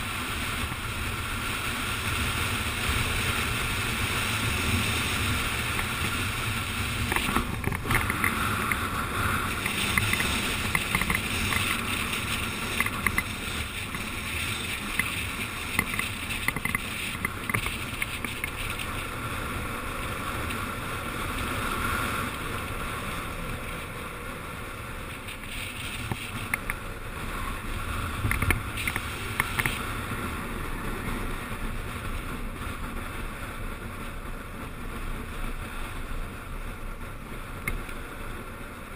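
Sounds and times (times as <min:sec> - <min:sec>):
skateboard wheels rolling on asphalt: 0:00.0 - 0:38.9
wind rushing over camera: 0:00.0 - 0:38.9.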